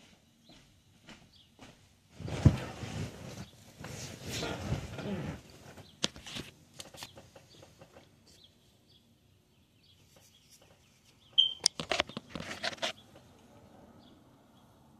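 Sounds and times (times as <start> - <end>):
bird calls: 6.9 - 13.4
high bird whistle: 11.3 - 11.7.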